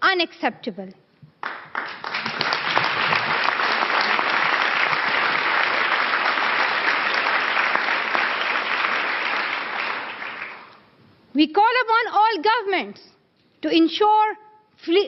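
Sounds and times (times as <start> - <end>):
audience applauding: 1.4 - 10.8.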